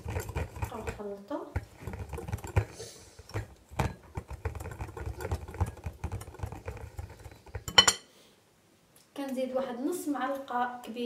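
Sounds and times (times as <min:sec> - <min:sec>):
whisk beating batter in glass bowl: 0:00.0 - 0:07.9.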